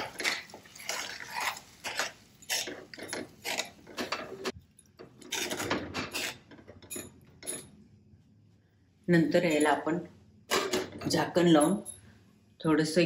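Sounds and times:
metal spoon stirring curry in pan: 0.0 - 4.6.

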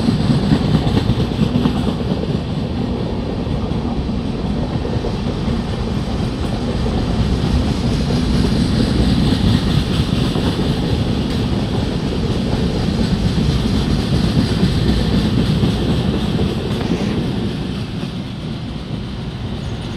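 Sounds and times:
train wheels rumbling on rails: 0.0 - 19.9.

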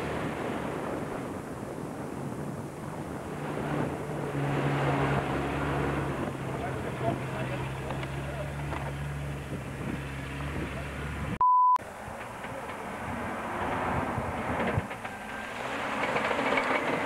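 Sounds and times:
wind noise on microphone: 0.0 - 7.4, 8.8 - 11.4, 12.9 - 15.1
electronic beep: 11.4 - 11.8.

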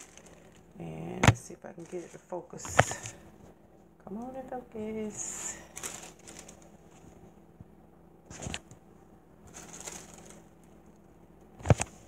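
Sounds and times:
plastic bag rustling: 0.0 - 3.6, 5.1 - 7.4, 8.3 - 8.7, 9.4 - 11.0.

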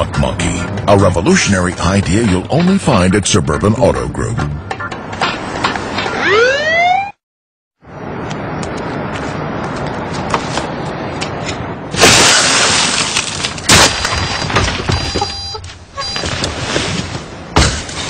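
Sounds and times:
car window glass shattering: 12.0 - 15.0.

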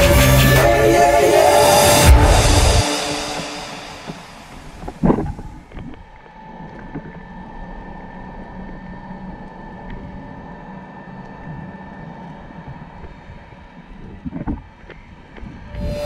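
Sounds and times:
faint steady hum: 0.6 - 16.0
muffled underwater rumble: 4.5 - 16.0.

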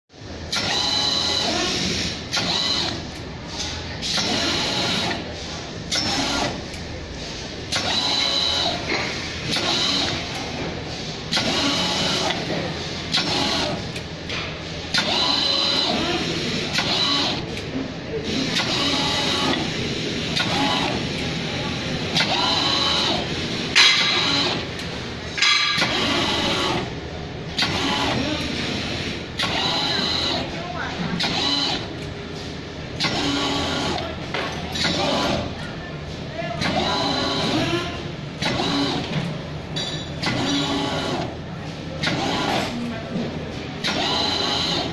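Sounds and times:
roll feeder mechanical whirr: 0.2 - 44.9
servo feeder whining: 36.4 - 41.4.

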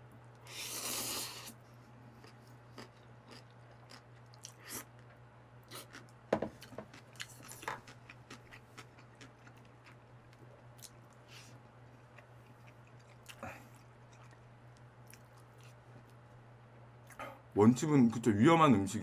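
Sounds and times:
faint low hum: 0.0 - 19.0
chewing noodles: 2.2 - 16.2.

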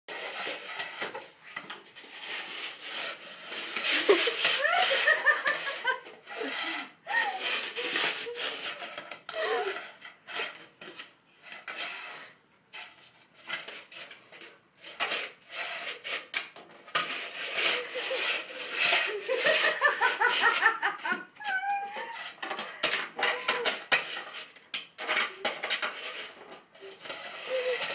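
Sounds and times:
plastic frisbee scraping on tiles: 0.1 - 27.9
person laughing: 3.9 - 7.3, 19.0 - 22.1.

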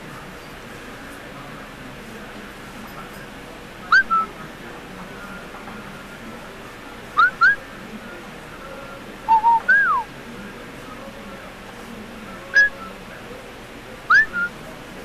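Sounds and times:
man whistling: 3.9 - 4.3, 7.2 - 7.6, 9.3 - 10.1, 14.1 - 14.6.

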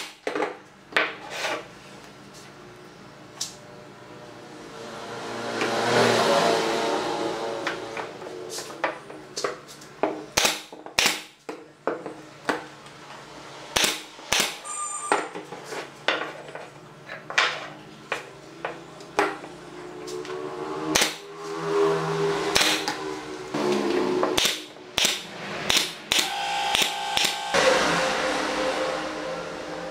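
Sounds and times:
nail gun shots: 10.4 - 11.4, 13.8 - 14.6, 20.9 - 21.3, 22.5 - 22.9, 24.4 - 27.4.

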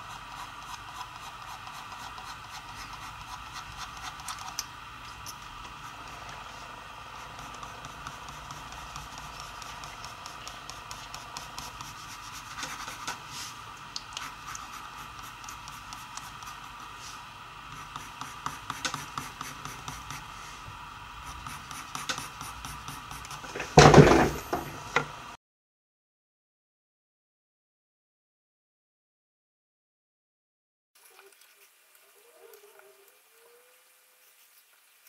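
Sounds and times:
pencil scratching on paper: 0.0 - 4.6, 5.3 - 13.6, 14.2 - 20.6, 21.2 - 23.6.

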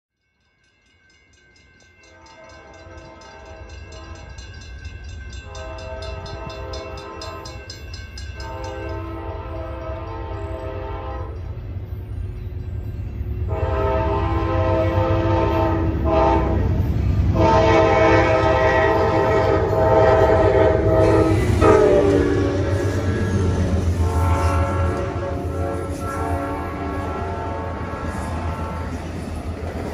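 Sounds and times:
low rumble of train: 0.1 - 29.9
bell ringing rapidly: 0.3 - 9.2
train air horn blasts: 5.4 - 7.5, 8.4 - 11.5, 13.5 - 29.0.

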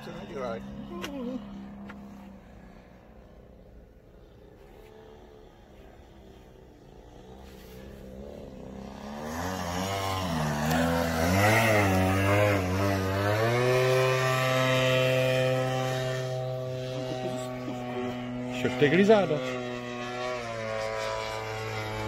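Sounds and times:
model plane engine flying past: 0.0 - 22.0.

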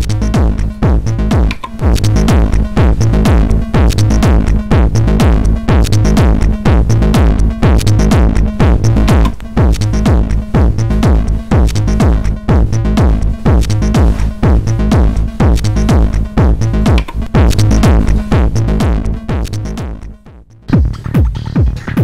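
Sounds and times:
techno drum machine beat with bass: 0.0 - 22.0.

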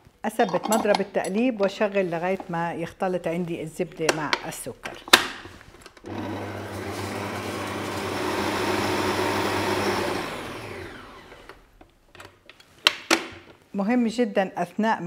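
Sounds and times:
stand mixer motor running: 6.1 - 11.5.

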